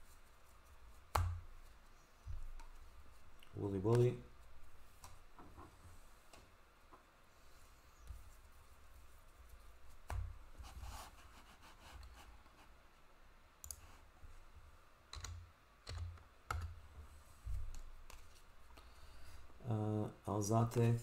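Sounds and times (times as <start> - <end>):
trading cards shuffling and clicking: 2.4 - 5.2, 17.6 - 18.5.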